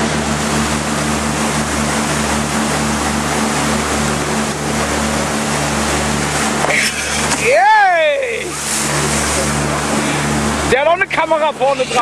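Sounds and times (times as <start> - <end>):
motorboat engine running: 0.0 - 12.0
rushing water: 0.0 - 12.0.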